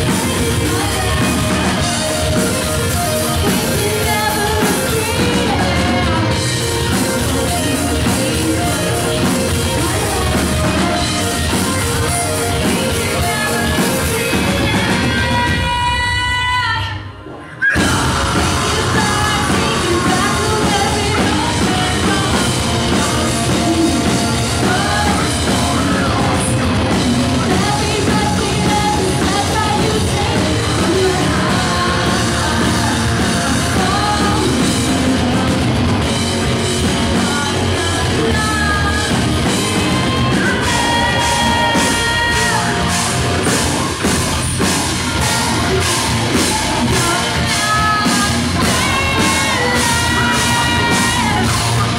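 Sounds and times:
loud rock band playing: 0:00.0 - 0:51.9
screamed and sung vocals: 0:00.0 - 0:51.9
drum beat: 0:17.8 - 0:37.4.

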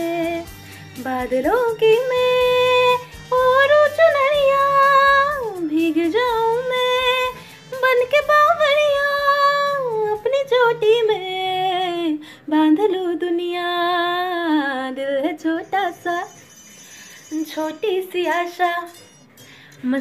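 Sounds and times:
woman singing unaccompanied: 0:00.0 - 0:16.5, 0:17.3 - 0:19.1, 0:19.8 - 0:20.0.

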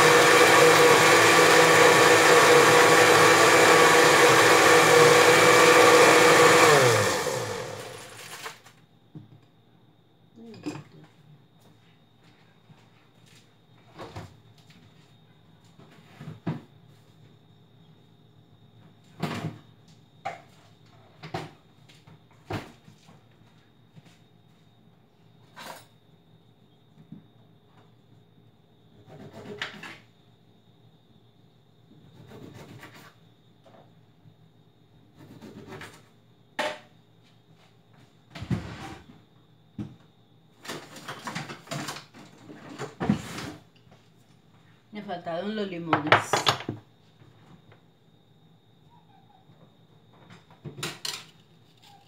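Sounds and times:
kitchen knocks and clunks: 0:10.4 - 0:11.2, 0:19.2 - 0:19.6, 0:39.8 - 0:43.6, 0:45.9 - 0:46.9, 0:50.1 - 0:51.3
kitchen items knocking: 0:45.9 - 0:46.8.

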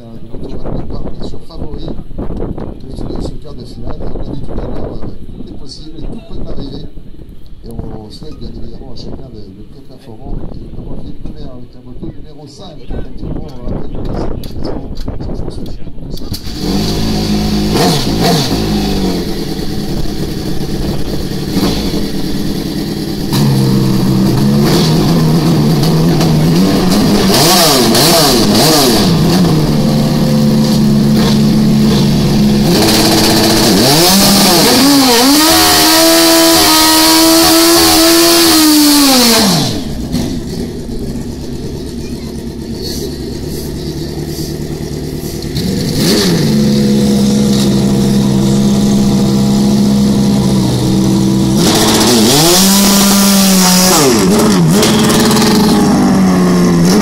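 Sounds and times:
motorcycle engine idling and revving: 0:13.1 - 0:57.0.

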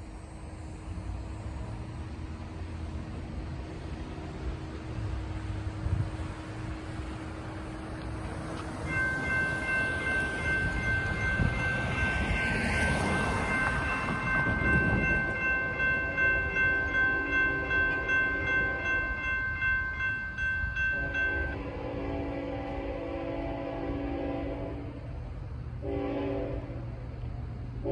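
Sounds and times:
railroad crossing bell ringing: 0:08.6 - 0:25.0
train horn: 0:20.8 - 0:25.2, 0:25.8 - 0:27.0.

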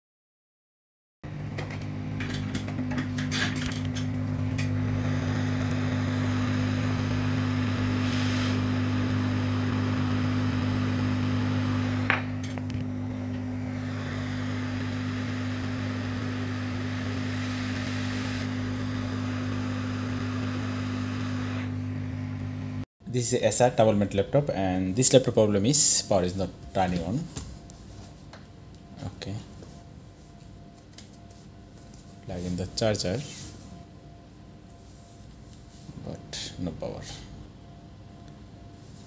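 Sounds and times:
hot air blower rushing: 0:04.2 - 0:22.8.

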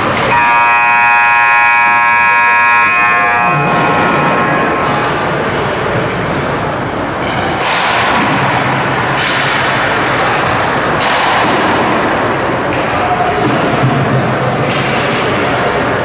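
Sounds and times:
loud rushing noise: 0:02.0 - 0:16.0
sharp ringing bangs: 0:02.8 - 0:05.9.

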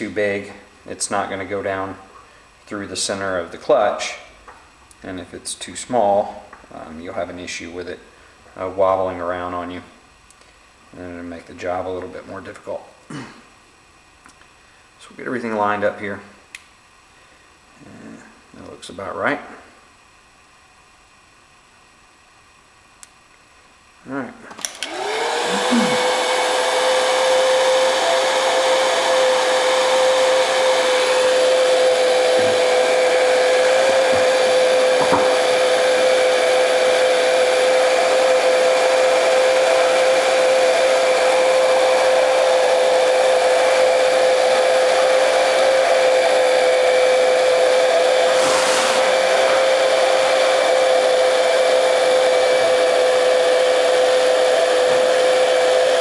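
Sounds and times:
heat gun whining: 0:24.5 - 0:56.0.

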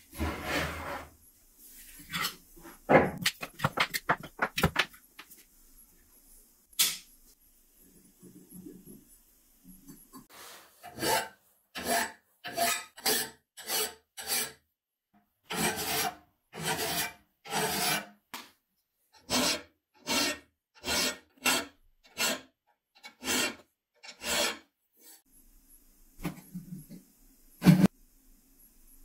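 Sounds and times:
hand file stroking cast iron: 0:15.5 - 0:18.0, 0:19.2 - 0:24.7.

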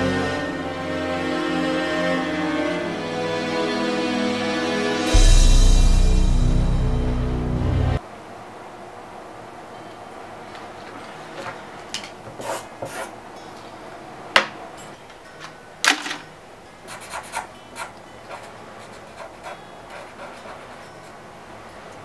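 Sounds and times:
pen scratching on paper: 0:12.4 - 0:13.1, 0:16.9 - 0:21.2.

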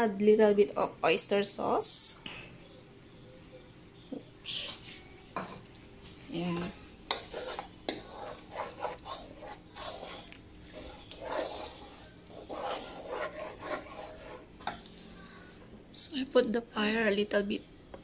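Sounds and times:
wooden spatula scraping wok: 0:06.6 - 0:14.5.

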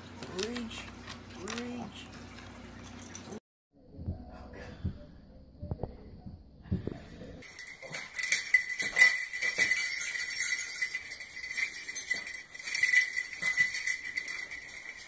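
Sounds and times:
small bells jingling: 0:07.4 - 0:15.0.

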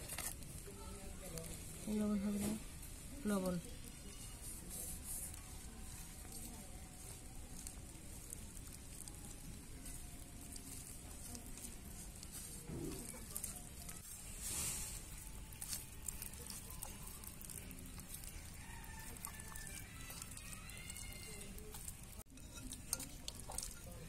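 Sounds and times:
hands rubbing wet paste into meat: 0:03.8 - 0:24.0.

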